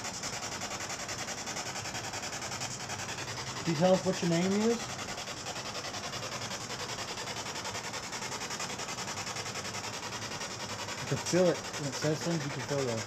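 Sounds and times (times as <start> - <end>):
radio static chopped rhythmically: 11.1 - 13.0.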